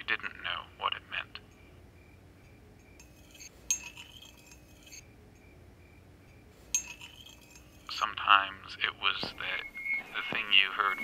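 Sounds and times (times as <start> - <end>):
teaspoon clinking in teacup: 3.0 - 5.0, 6.7 - 8.0.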